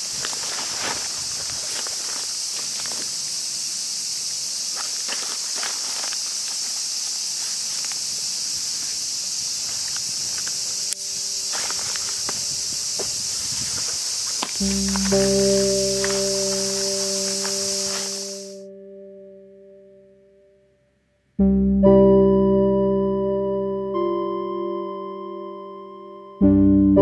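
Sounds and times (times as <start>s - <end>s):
cicadas droning: 0.0s - 18.7s.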